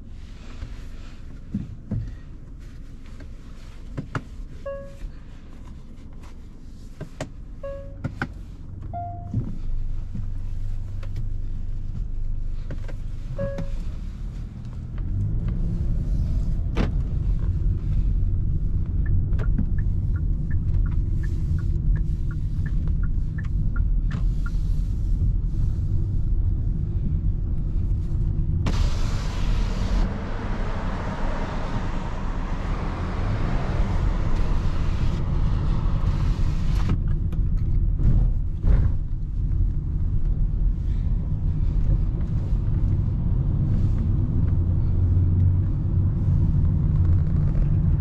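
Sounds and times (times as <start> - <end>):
engine and tyres rumbling on road: 0.0 - 48.0
car idle hum: 0.1 - 48.0
electronic chime beeps: 7.6 - 8.0, 9.0 - 9.4
light ticks: 18.8 - 24.6.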